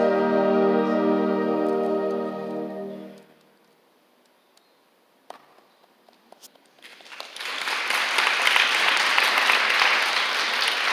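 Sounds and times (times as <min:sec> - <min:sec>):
audience applause: 0:06.8 - 0:10.9.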